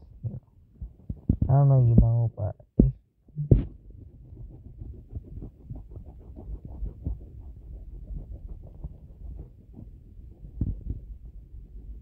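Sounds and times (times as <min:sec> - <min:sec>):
rubbing and tapping on touchscreen: 0:00.2 - 0:12.0.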